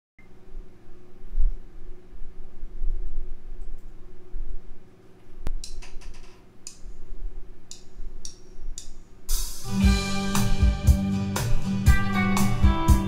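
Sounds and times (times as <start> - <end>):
sharp click: 5.4 - 6.9
electric guitar amp humming: 9.3 - 13.0
electric guitar playing: 9.6 - 13.0.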